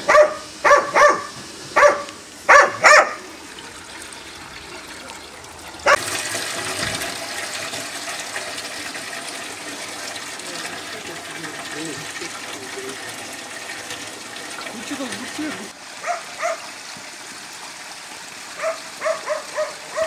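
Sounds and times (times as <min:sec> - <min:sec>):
dog barking: 0:00.0 - 0:03.3, 0:16.0 - 0:16.7, 0:18.6 - 0:20.0
water pouring into steel barrel: 0:02.7 - 0:20.0.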